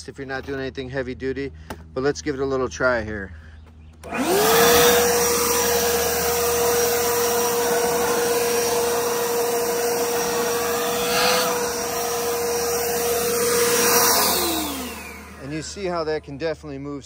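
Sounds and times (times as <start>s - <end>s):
electric leaf blower running: 4.0s - 16.8s.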